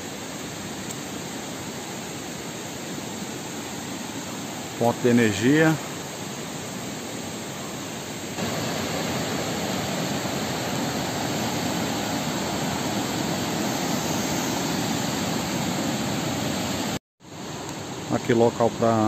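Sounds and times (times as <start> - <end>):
river rapids rushing: 8.4 - 17.0.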